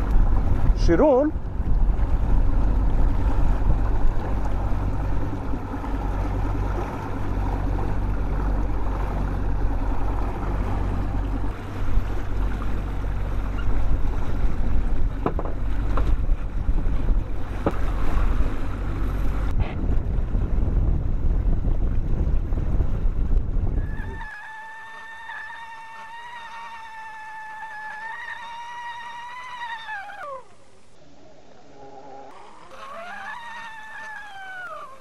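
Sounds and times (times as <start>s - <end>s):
wind on microphone: 0.0s - 26.2s
boat engine running: 0.0s - 35.0s
water rushing past hull: 0.0s - 35.0s.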